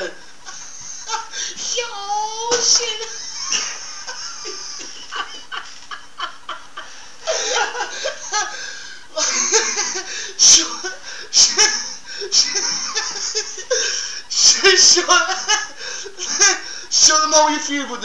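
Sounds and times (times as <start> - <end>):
people laughing: 0.0 - 1.6, 2.4 - 16.9.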